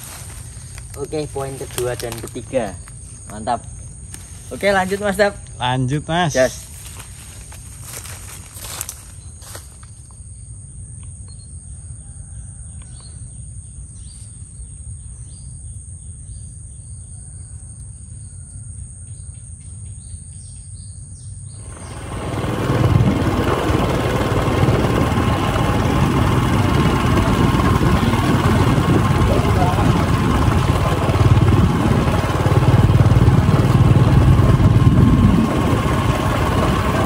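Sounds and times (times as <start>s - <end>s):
insect drone: 0.0s - 37.0s
motorcycle engine running: 21.6s - 37.0s
wind noise: 21.6s - 37.0s.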